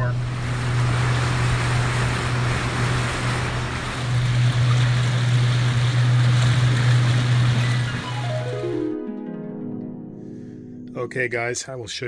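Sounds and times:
water rushing and churning: 0.0 - 8.8
boat engine humming: 0.0 - 9.0.

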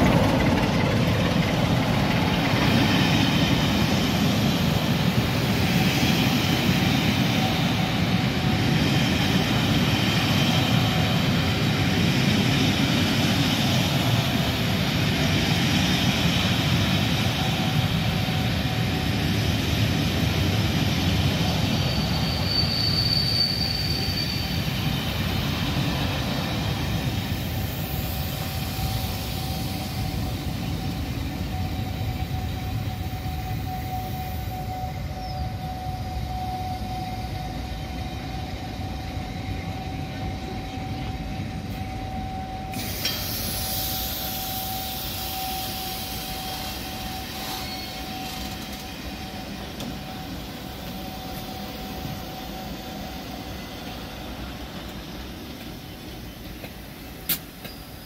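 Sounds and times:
high wheel squeal: 0.0 - 56.6
train wheels rumbling on rails: 0.0 - 58.0.

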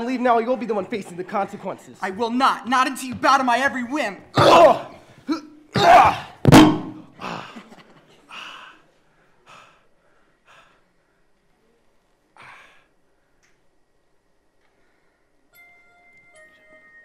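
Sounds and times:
body thudding onto stage floor: 5.8 - 7.1.

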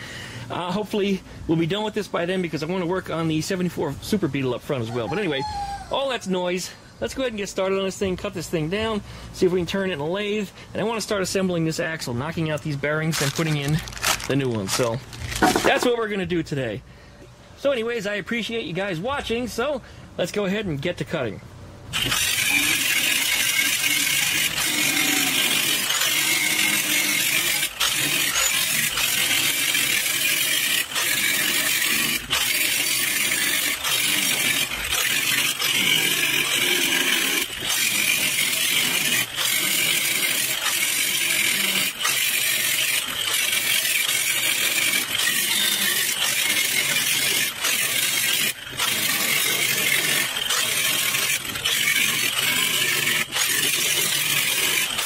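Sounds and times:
angle grinder cutting metal: 13.1 - 16.0, 21.9 - 55.0.

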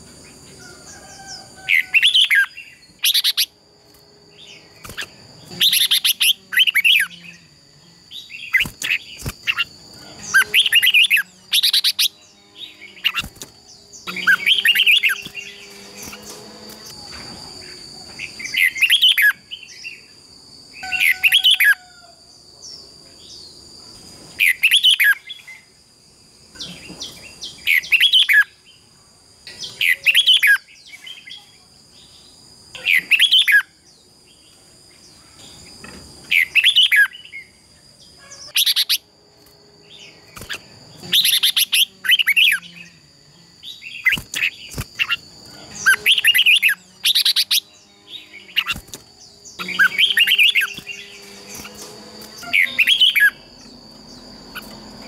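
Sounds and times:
bulbul chattering song: 4.4 - 7.5, 8.2 - 16.2, 40.0 - 43.0, 43.7 - 54.8.

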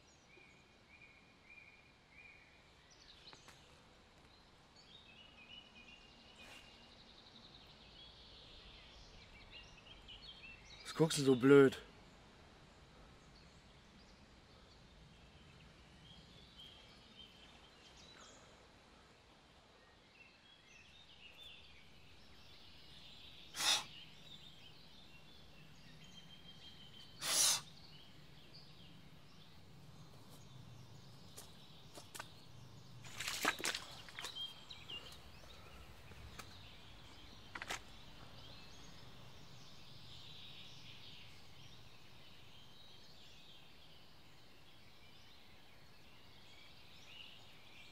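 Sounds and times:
bird chirps: 20.3 - 47.9.

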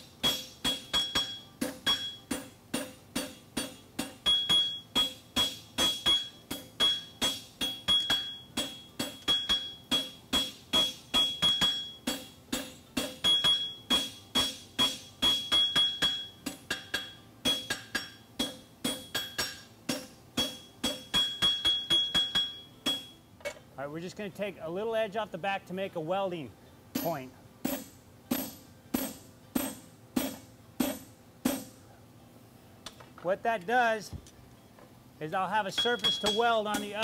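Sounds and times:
hammer striking hot steel on anvil: 0.0 - 23.2, 26.9 - 31.8, 35.7 - 37.0
anvil ringing: 0.2 - 23.2, 26.9 - 31.8, 35.7 - 37.0.

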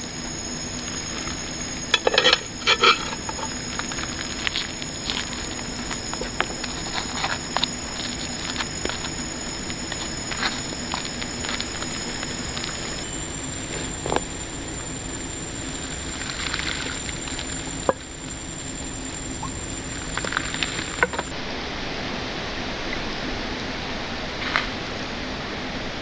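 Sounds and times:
thin high steady tone: 0.0 - 21.9.

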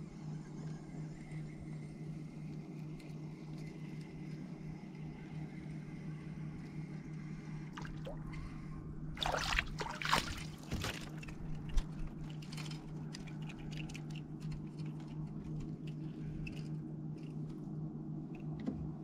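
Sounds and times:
small water drips: 7.8 - 8.5, 9.2 - 10.8
water splashing and trickling: 7.8 - 8.6, 9.2 - 11.6.

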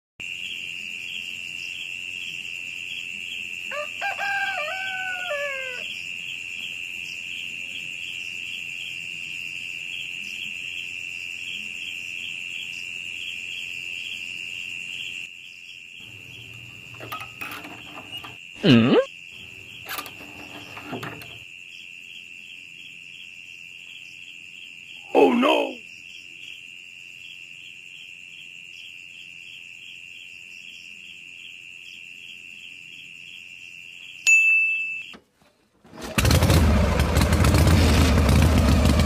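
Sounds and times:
rooster crowing: 3.7 - 6.0.

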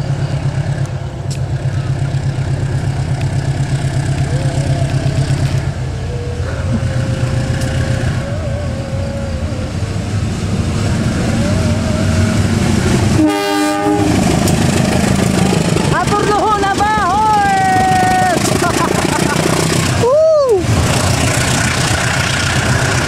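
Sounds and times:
locomotive engine rumble: 0.0 - 23.0
short horn blast: 13.2 - 14.2.

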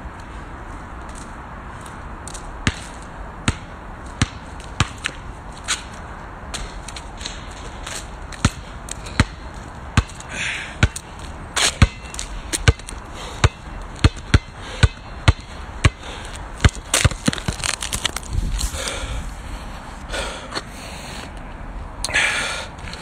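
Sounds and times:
basketball bouncing on tarmac: 1.1 - 5.2, 6.5 - 18.2.

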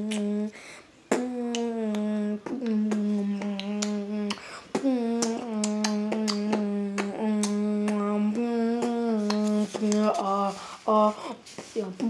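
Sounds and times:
beatboxing hummed low note: 0.0 - 10.2
beatboxing sharp clicks: 1.1 - 8.1, 8.7 - 10.1.

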